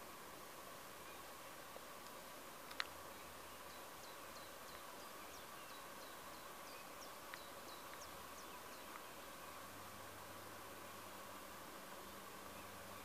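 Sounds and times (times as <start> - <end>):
bird chirping: 3.2 - 9.7, 12.0 - 13.0.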